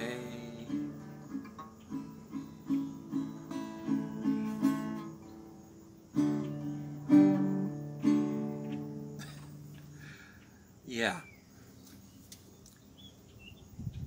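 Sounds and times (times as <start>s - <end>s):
acoustic guitar strumming chords: 0.0s - 10.1s.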